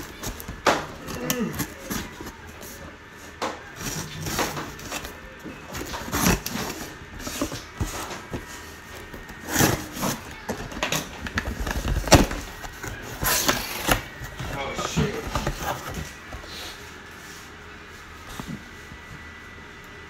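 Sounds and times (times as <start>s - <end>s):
cardboard box scraping and rustling: 3.8s - 16.8s.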